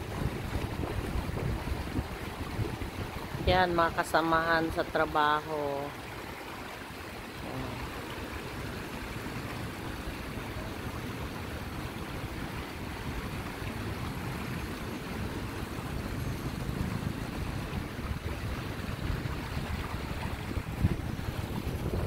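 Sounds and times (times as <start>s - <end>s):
wind buffeting microphone: 0.0s - 3.9s, 8.6s - 22.0s
river water rushing over rocks: 0.0s - 22.0s.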